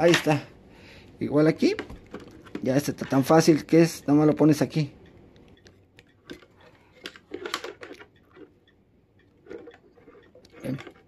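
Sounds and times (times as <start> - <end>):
wires clicking in plastic jar: 1.5 - 11.0.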